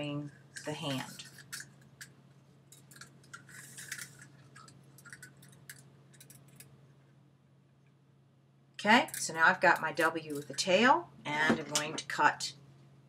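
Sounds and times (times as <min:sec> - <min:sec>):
low steady hum: 0:00.0 - 0:13.0
wire clicking and scraping: 0:00.4 - 0:06.8, 0:08.8 - 0:10.8.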